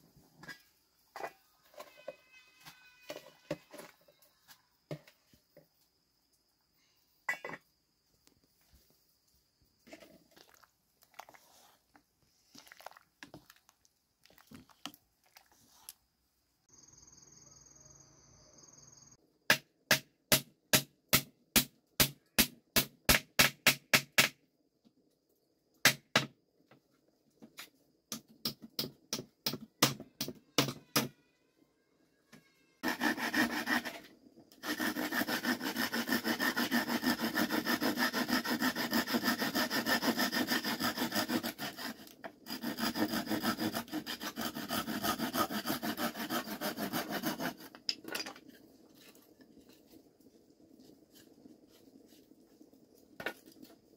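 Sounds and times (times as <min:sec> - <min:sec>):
wooden spoon stirring metal pot: 0:09.8 - 0:16.0
hammer nailing wood: 0:19.5 - 0:24.4
handsaw cutting wood: 0:32.8 - 0:47.8.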